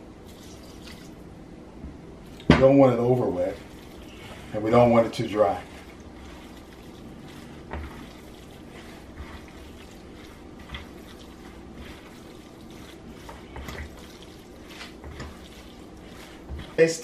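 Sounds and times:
spatula squelching and scraping: 2.3 - 17.0.

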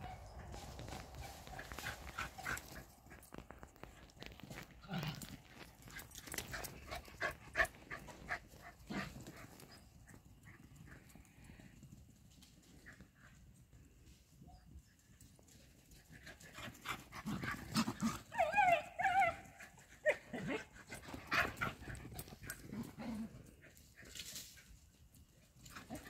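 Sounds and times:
thuds and scuffles of running dogs: 0.3 - 11.0
dog yelping: 18.0 - 20.6.

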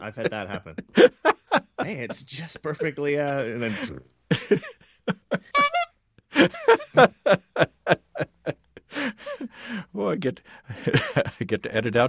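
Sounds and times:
laughter: 0.0 - 9.5, 10.7 - 11.5
bicycle horn honk: 5.6 - 5.9.

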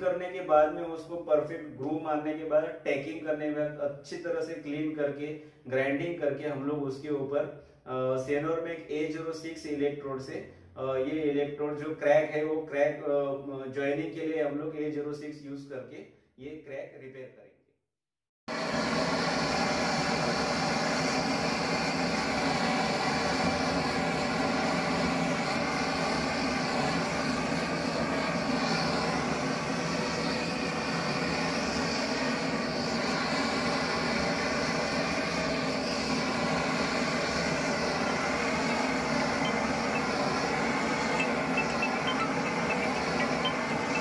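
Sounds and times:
gas torch flame burning: 18.5 - 44.0
faint steady tones: 35.4 - 44.0.

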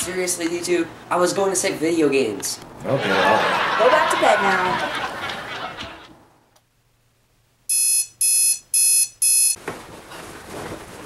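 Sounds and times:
alarm clock beeping: 7.7 - 9.6
faint rustling: 9.6 - 11.0.

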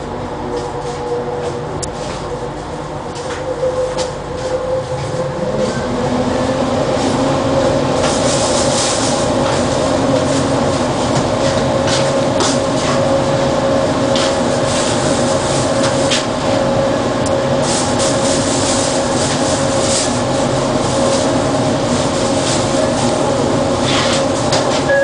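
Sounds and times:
metro train drive whine: 0.0 - 25.0
train running noise: 0.0 - 25.0.

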